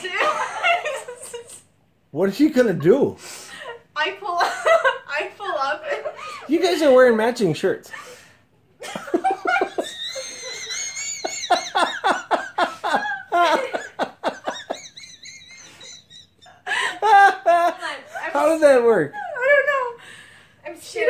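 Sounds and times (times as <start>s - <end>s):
girls laughing with squeals: 8.8s - 17.9s.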